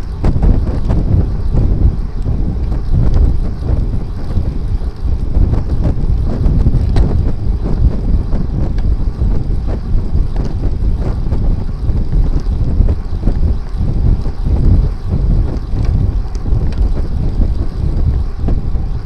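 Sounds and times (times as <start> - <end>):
wind buffeting microphone: 0.0 - 19.0
faint clicks: 15.5 - 17.0.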